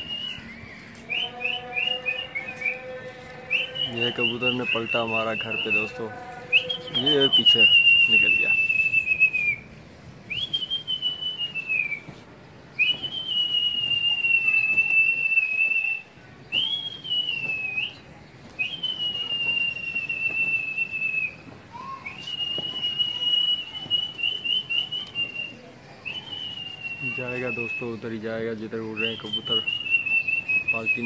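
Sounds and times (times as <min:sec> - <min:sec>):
person whistling long high notes: 0:00.0 - 0:02.8, 0:06.5 - 0:09.7, 0:12.8 - 0:18.0, 0:18.6 - 0:28.0, 0:29.0 - 0:31.0.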